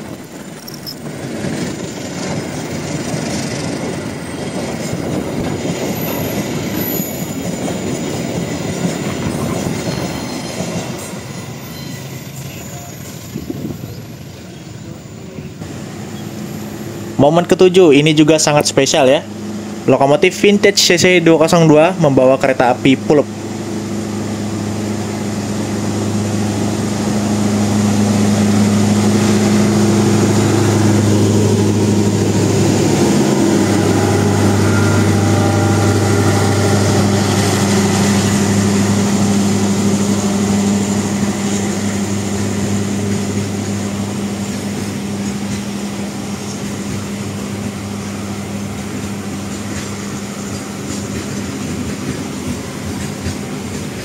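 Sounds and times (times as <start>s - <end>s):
freight wagons rolling on rails: 0.0s - 15.1s
locomotive engine drone: 0.0s - 54.0s.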